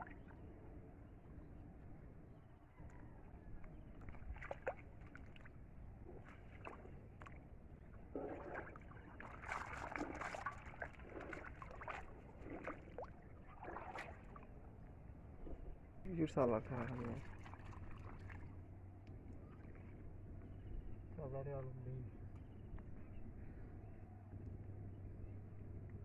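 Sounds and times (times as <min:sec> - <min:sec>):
shallow water sloshing and splashing: 0:03.8 - 0:18.7.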